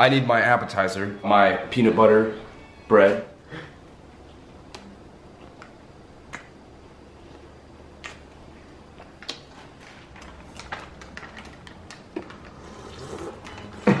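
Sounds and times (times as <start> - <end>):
low room noise: 0.0 - 14.0
mouth clicks and smacks: 6.3 - 6.6, 8.0 - 8.4.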